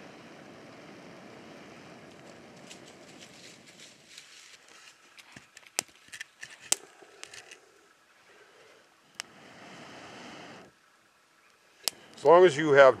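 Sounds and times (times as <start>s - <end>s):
blowing into charcoal: 0.0s - 4.8s, 8.3s - 10.8s.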